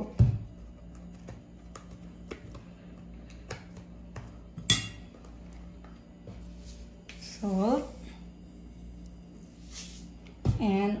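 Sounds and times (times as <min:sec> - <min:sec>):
metal spoon clinking glass bowl: 0:04.7 - 0:05.0.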